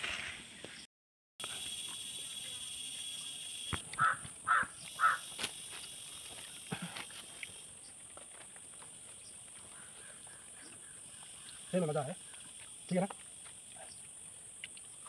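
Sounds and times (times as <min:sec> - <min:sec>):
crow cawing: 0:04.0 - 0:05.4, 0:09.6 - 0:11.8.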